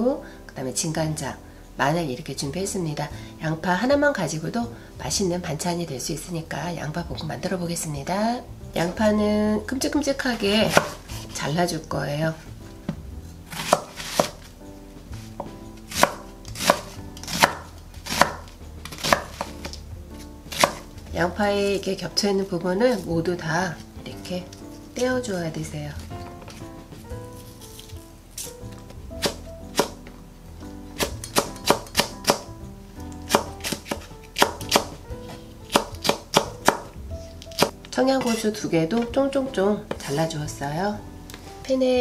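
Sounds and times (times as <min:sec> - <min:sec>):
knife chopping onion on wooden board: 0:10.5 - 0:11.4, 0:12.9 - 0:14.5, 0:15.2 - 0:19.8, 0:20.5 - 0:21.0, 0:29.2 - 0:30.1, 0:31.0 - 0:32.5, 0:33.1 - 0:36.9, 0:37.5 - 0:38.4.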